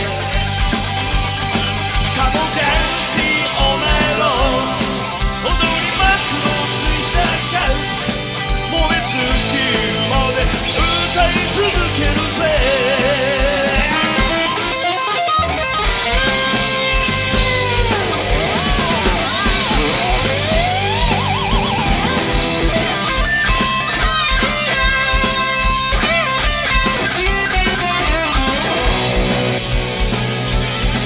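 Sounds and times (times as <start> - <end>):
man singing lead vocal: 0.0 - 0.5, 2.0 - 14.8
live rock band playing: 0.0 - 31.0.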